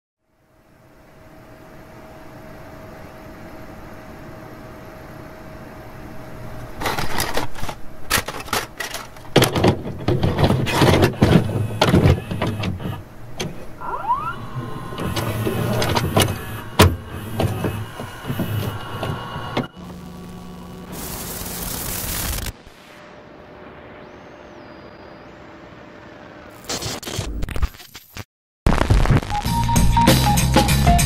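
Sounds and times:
steady low hum: 0:00.2 - 0:26.5
tape recorder clicks and clunks: 0:06.8 - 0:13.7, 0:15.0 - 0:19.7
motor whirring: 0:10.6 - 0:20.1
short rising whine: 0:13.0 - 0:26.8.

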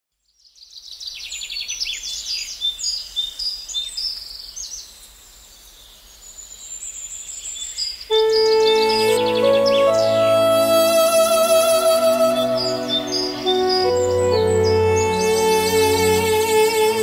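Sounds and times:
birds chirping and trilling: 0:06.4 - 0:17.0
music with sustained notes: 0:08.1 - 0:17.0.

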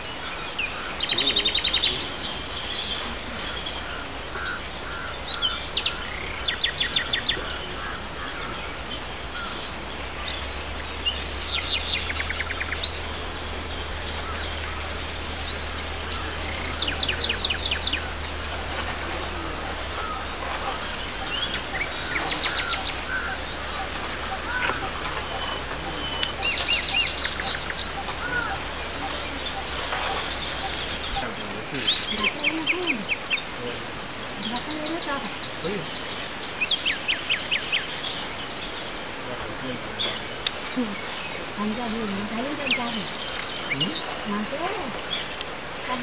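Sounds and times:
bird chirps: 0:00.0 - 0:46.0
birds trilling: 0:00.0 - 0:46.0.

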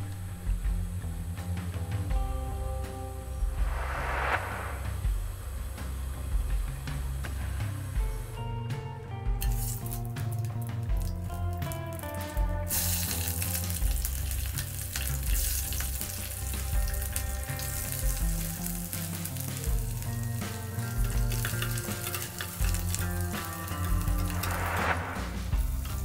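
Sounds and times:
background music: 0:00.0 - 0:26.0
food sizzling in oil: 0:09.4 - 0:10.0, 0:12.0 - 0:26.0.

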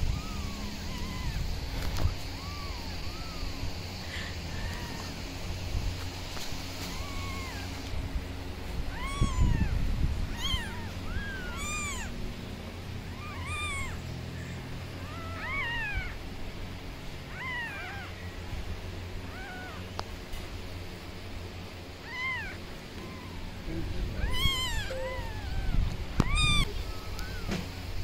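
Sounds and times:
kittens mewing: 0:00.0 - 0:20.0, 0:21.7 - 0:28.0.

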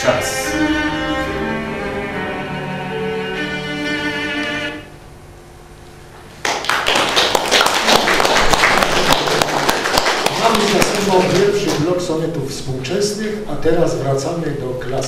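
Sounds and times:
bowed-string music: 0:00.0 - 0:05.0
audience applause: 0:06.4 - 0:11.9.

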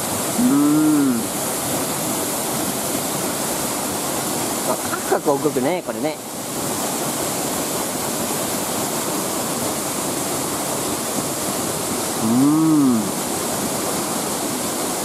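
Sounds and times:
waterfall rushing: 0:00.0 - 0:15.0
rising and falling voice: 0:00.4 - 0:01.3, 0:12.2 - 0:13.1.

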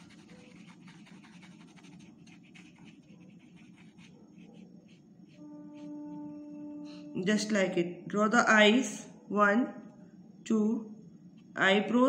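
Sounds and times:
pen scribbling on wood: 0:00.0 - 0:06.0
low background hum: 0:00.0 - 0:12.0.

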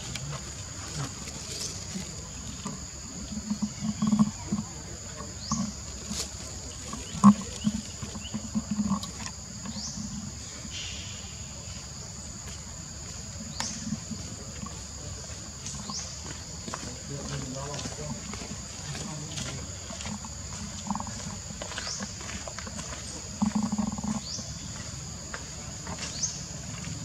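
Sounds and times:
monkeys grunting: 0:16.7 - 0:25.0.

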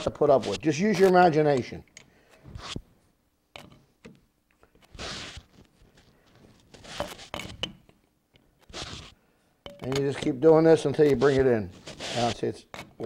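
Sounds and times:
chuck key scraping: 0:06.7 - 0:07.8, 0:08.6 - 0:09.1, 0:09.7 - 0:13.0.

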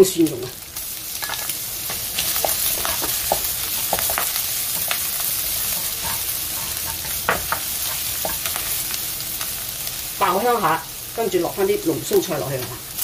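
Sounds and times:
food sizzling in hot oil: 0:00.0 - 0:13.0
spatula scraping and tapping wok: 0:01.2 - 0:09.0.

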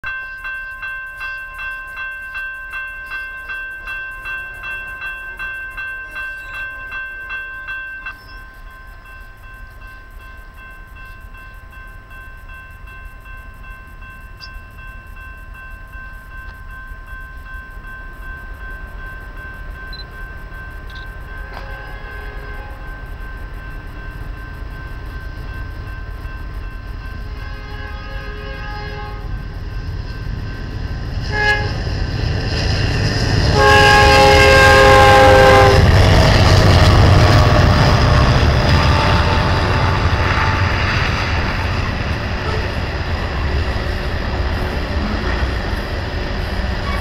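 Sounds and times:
crossing warning bell ringing: 0:00.0 - 0:47.0
distant freight train rumble: 0:00.0 - 0:47.0
wind noise: 0:18.4 - 0:47.0.

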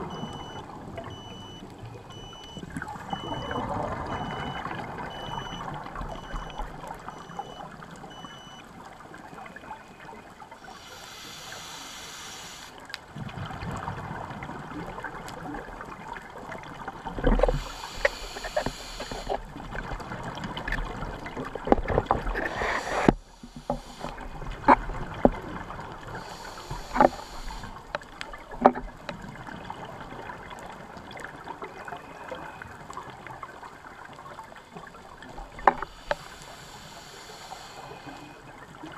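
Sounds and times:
exhaled bubbles underwater: 0:00.0 - 0:10.8
watery background: 0:00.0 - 0:38.9.

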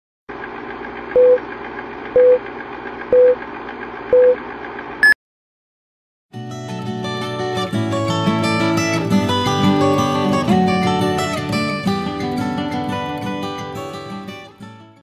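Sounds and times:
strummed acoustic guitar music: 0:06.4 - 0:15.0.

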